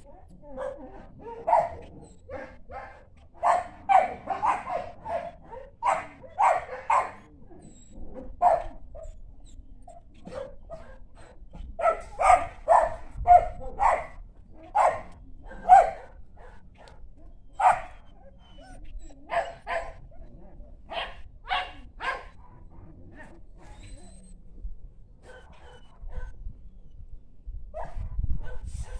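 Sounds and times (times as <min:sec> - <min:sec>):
dog barking: 0:00.5 - 0:07.3, 0:08.4 - 0:09.1, 0:10.2 - 0:17.0, 0:17.6 - 0:18.0, 0:19.3 - 0:20.0, 0:20.9 - 0:22.6, 0:25.2 - 0:26.4, 0:27.8 - 0:28.9.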